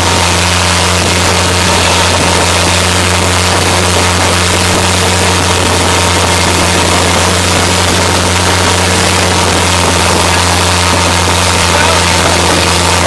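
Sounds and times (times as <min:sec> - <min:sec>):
boat engine humming: 0:00.0 - 0:13.0
water rushing along hull: 0:00.0 - 0:13.0.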